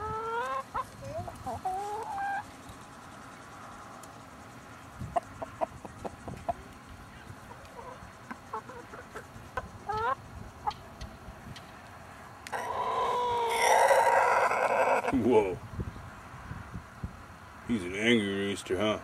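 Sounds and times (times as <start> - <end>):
hens clucking: 0.0 - 2.5, 4.9 - 11.1, 12.5 - 15.3.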